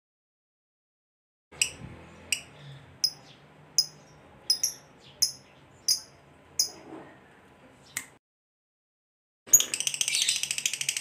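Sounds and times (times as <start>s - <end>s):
lovebird chirping: 1.6s - 6.8s, 9.5s - 11.0s.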